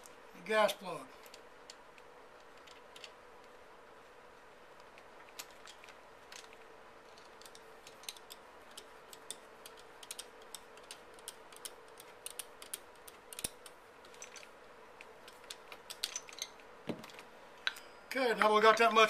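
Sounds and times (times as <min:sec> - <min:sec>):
metal-on-metal clicks: 0:05.0 - 0:18.9.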